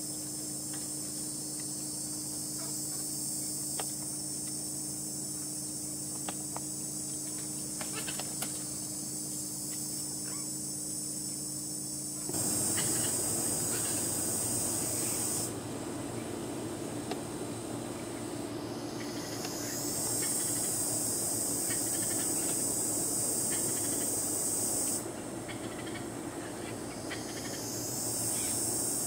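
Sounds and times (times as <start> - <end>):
high-pitched insect chorus: 0.0 - 29.0
low hum: 12.3 - 24.4.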